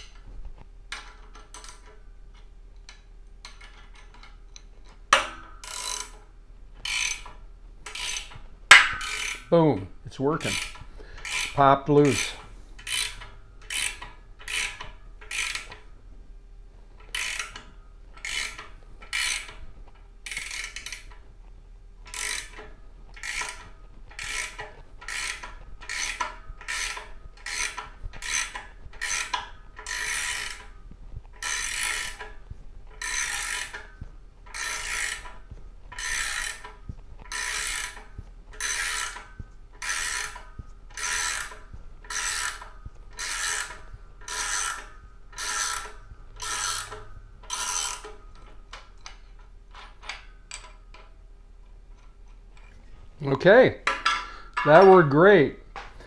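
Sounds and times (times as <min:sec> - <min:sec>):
ratchet wrench clicking: 0:02.9 - 0:06.2, 0:06.8 - 0:09.5, 0:10.4 - 0:15.8, 0:17.0 - 0:19.6, 0:20.3 - 0:21.2, 0:22.1 - 0:30.8, 0:31.4 - 0:51.1.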